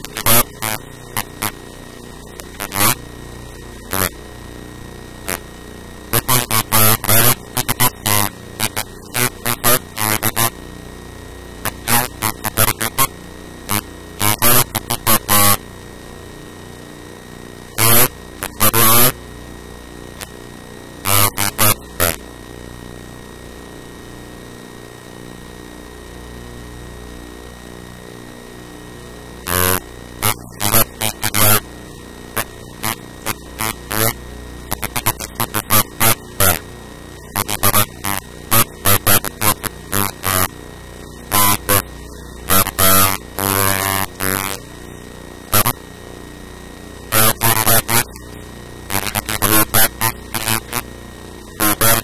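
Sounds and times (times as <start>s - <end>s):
person speaking: 0.0s - 1.5s, 34.8s - 36.6s
electrical hum and hiss: 0.0s - 52.0s
man talking in distorted bursts: 34.8s - 36.6s, 47.2s - 48.1s, 49.0s - 50.8s, 51.6s - 52.0s.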